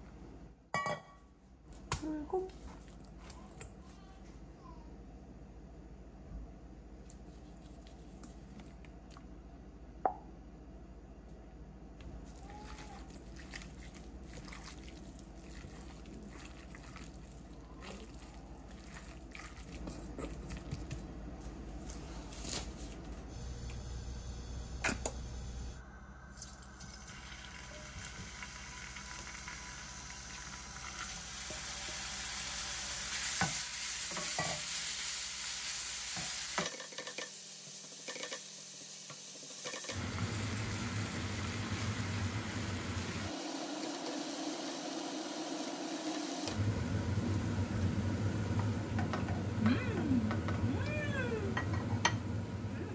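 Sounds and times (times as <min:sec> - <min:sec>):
utensil stirring: 0:12.3 - 0:22.0
food sizzling in a pan: 0:26.4 - 0:46.6.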